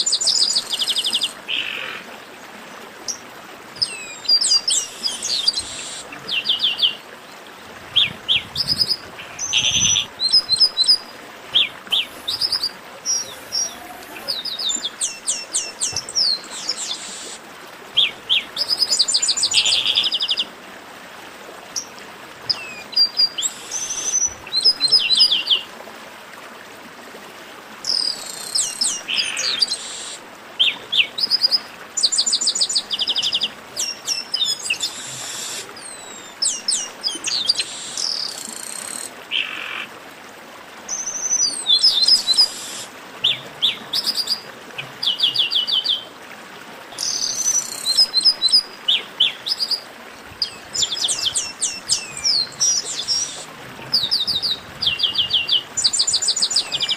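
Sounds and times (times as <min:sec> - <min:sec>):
background hiss: 0:03.8 - 0:06.9, 0:07.6 - 0:20.4, 0:23.4 - 0:25.2, 0:27.8 - 0:30.5, 0:32.0 - 0:39.8, 0:40.9 - 0:44.4
blackbirds singing trills and whistles: 0:03.8 - 0:07.0, 0:08.0 - 0:17.4, 0:22.5 - 0:25.6, 0:27.8 - 0:39.8, 0:40.9 - 0:46.0, 0:47.0 - 0:49.8, 0:50.4 - 0:56.9.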